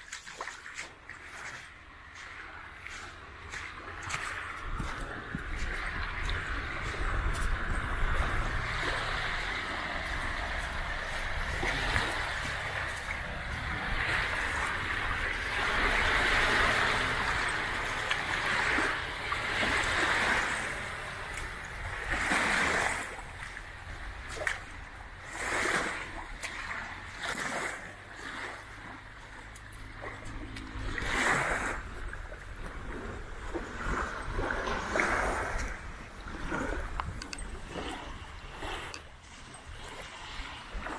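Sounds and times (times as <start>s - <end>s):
small waves splashing on beach: 0.0s - 40.9s
low steady rumble: 1.6s - 22.2s.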